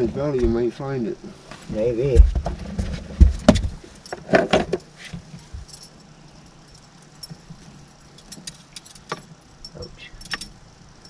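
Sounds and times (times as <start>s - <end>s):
fishing gear clinking and rattling: 3.9s - 11.0s.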